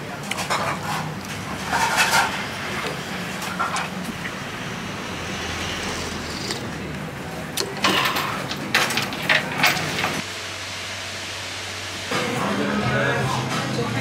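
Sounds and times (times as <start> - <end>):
traffic hum: 0.1 - 10.3.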